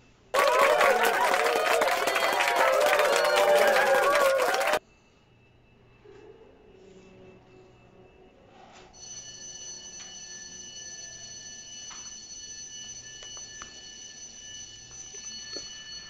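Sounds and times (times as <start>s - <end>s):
store alarm tone: 9.0s - 16.0s.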